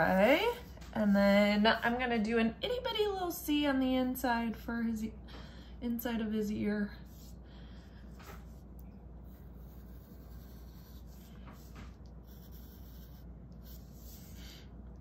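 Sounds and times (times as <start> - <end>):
low steady hum: 0.0 - 15.0
pencil scratching on paper: 7.0 - 7.4, 9.2 - 14.7.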